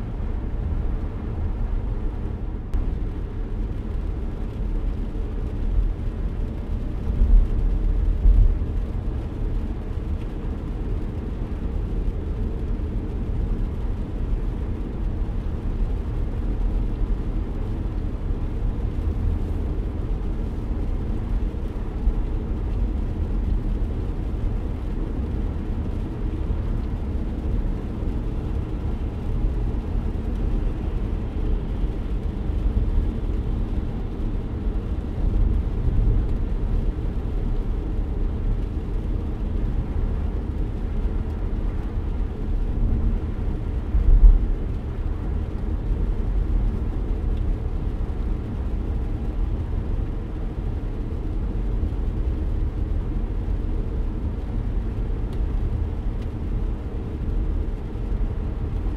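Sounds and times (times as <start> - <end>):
car interior rumble: 0.0 - 58.9.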